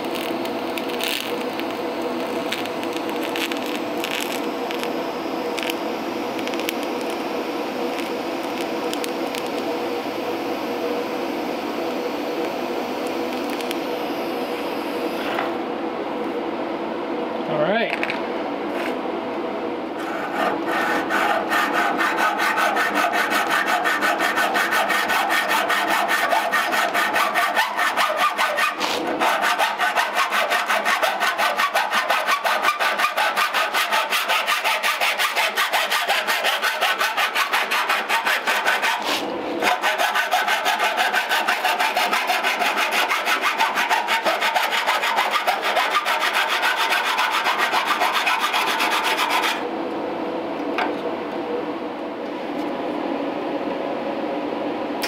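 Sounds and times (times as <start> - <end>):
hacksaw cutting metal: 20.3 - 39.0, 39.6 - 49.6.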